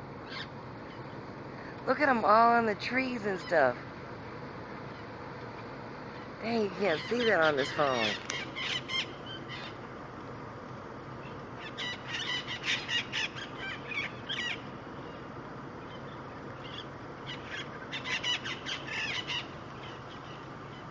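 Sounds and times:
parrots squawking: 0:06.6 - 0:09.8, 0:11.6 - 0:14.7, 0:16.6 - 0:20.9.

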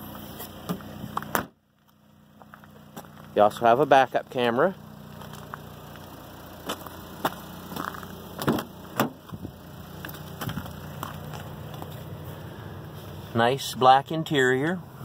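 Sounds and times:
steady low hum: 0:00.0 - 0:13.4
car door clicks and knocks: 0:08.4 - 0:09.4.

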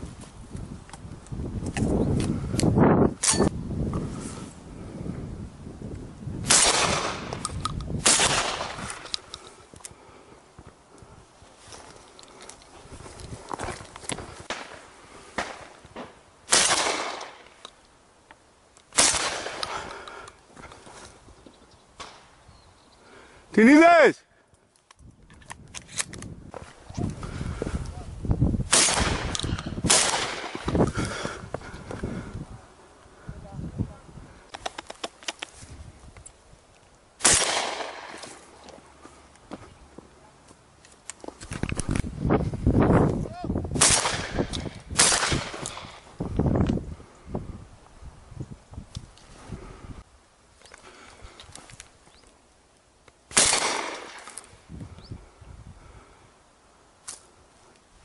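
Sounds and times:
wind on microphone: 0:00.0 - 0:09.2, 0:25.0 - 0:34.8, 0:35.6 - 0:36.3, 0:41.4 - 0:50.1, 0:54.5 - 0:56.2
shotgun shots: 0:06.4 - 0:07.4, 0:08.0 - 0:08.9, 0:16.5 - 0:17.4, 0:18.9 - 0:19.6, 0:28.7 - 0:30.7, 0:37.2 - 0:38.2, 0:43.8 - 0:46.0, 0:53.3 - 0:54.3.

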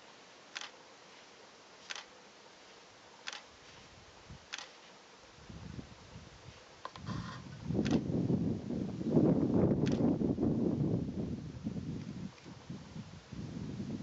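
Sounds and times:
faint background hiss: 0:00.0 - 0:14.0
short sharp clicks: 0:01.9 - 0:02.1, 0:03.3 - 0:03.5, 0:09.8 - 0:10.1
wind rumble on microphone: 0:05.4 - 0:14.0.

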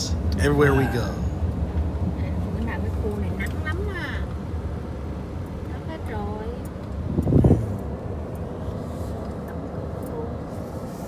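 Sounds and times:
car driving rumble from inside: 0:00.0 - 0:11.0.

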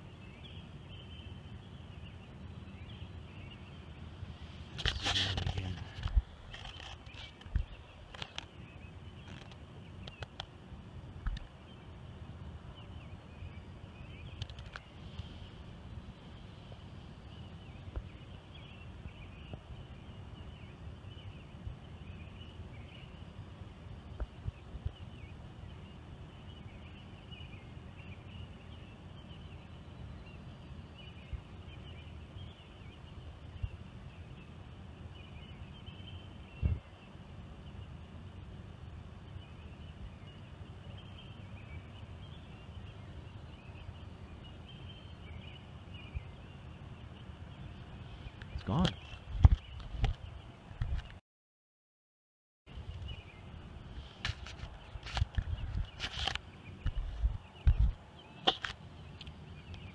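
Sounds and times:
faint birds chirping: 0:00.0 - 0:51.2, 0:52.7 - 0:59.9.

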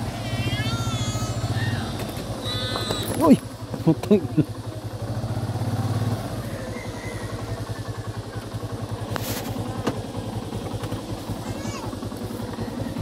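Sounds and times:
motorcycle engine idling: 0:00.0 - 0:13.0
rustle: 0:09.0 - 0:09.9.

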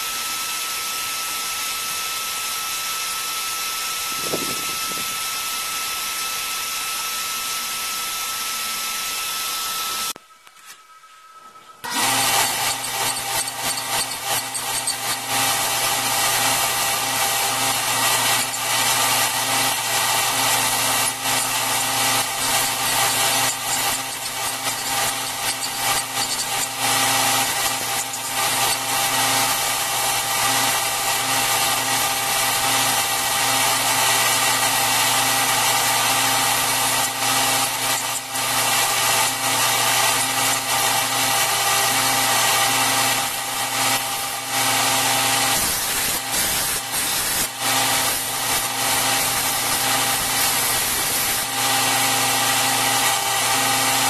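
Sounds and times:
belt grinder motor hum: 0:00.0 - 0:10.2, 0:11.8 - 0:54.0
abrasive belt rasping on metal: 0:11.8 - 0:54.0.

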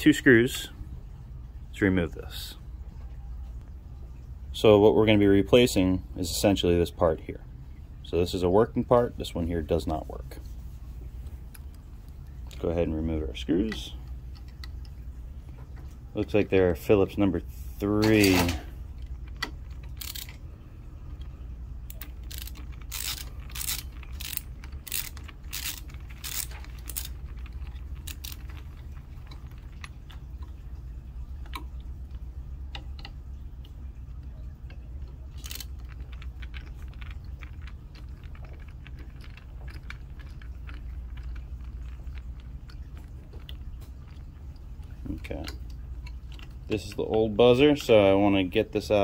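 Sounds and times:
low steady hum: 0:00.0 - 0:49.0
small parts rattling: 0:18.0 - 0:20.4, 0:21.9 - 0:30.2, 0:35.0 - 0:43.8.

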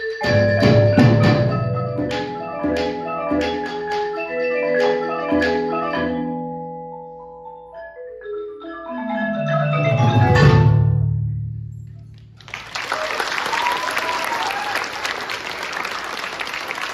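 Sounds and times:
marimba ensemble playing: 0:00.0 - 0:12.4.

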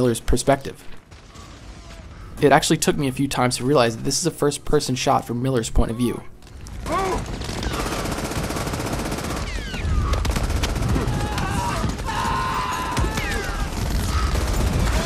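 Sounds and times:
rapid machine-gun and rifle fire: 0:06.7 - 0:15.0.

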